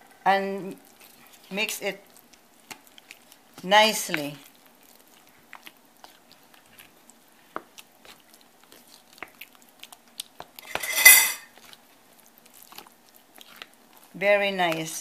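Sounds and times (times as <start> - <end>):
spoon scraping glass bowl: 10.6 - 11.5.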